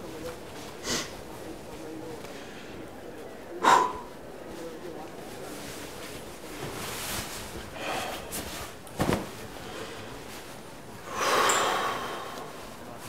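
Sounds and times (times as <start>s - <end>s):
fabric rustling: 4.5s - 11.0s.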